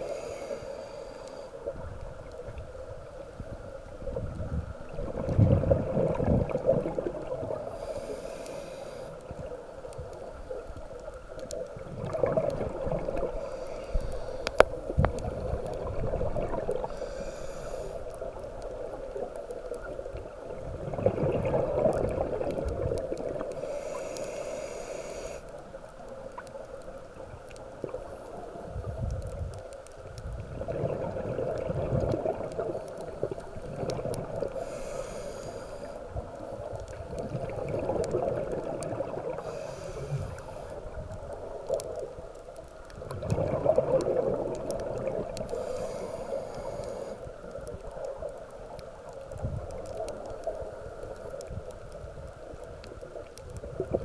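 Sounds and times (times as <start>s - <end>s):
hissing regulator inhalations: 0.0s - 1.6s, 7.6s - 9.3s, 13.3s - 14.8s, 16.8s - 18.2s, 23.6s - 25.6s, 34.5s - 36.7s, 39.4s - 40.8s, 45.4s - 47.4s
bubbly exhalations underwater: 4.9s - 7.6s, 11.8s - 13.3s, 20.6s - 23.4s, 30.4s - 32.7s, 37.0s - 39.4s, 43.0s - 45.4s.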